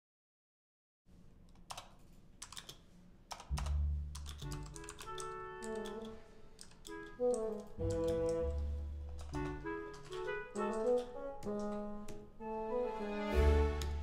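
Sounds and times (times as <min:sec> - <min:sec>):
typing on computer keyboard: 0:01.5 - 0:11.8
film score music: 0:03.6 - 0:14.0.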